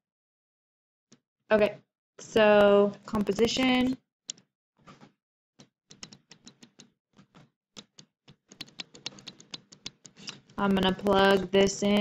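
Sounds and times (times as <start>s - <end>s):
stylus tapping on tablet: 5.9s - 12.0s.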